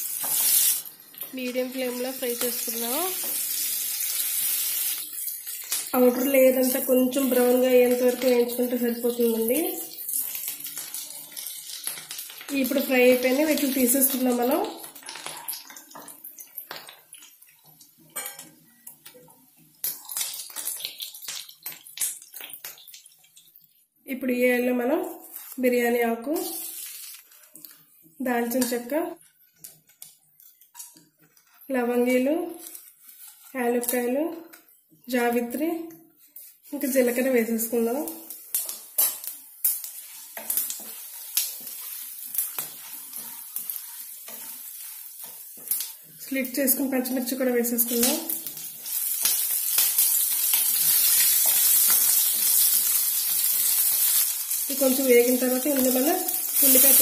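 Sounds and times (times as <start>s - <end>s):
oil sizzling: 0.0s - 23.8s, 24.8s - 34.2s, 36.3s - 57.0s
wooden spatula stirring: 32.6s - 33.6s, 38.6s - 48.0s
utensils scraping a pan: 39.9s - 46.2s.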